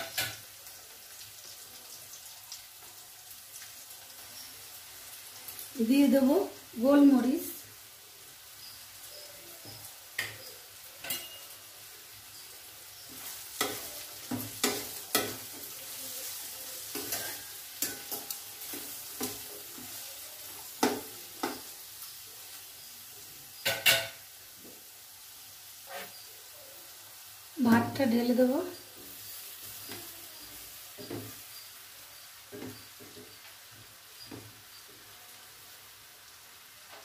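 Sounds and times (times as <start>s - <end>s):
vegetables sizzling in a pan: 0.0s - 37.0s
metal spoon scraping and clinking pan: 11.0s - 11.6s, 16.9s - 19.4s.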